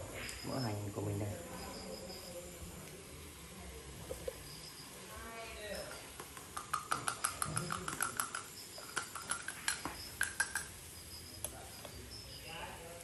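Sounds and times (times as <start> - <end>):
metal spoon clinking on shells: 5.7 - 12.0.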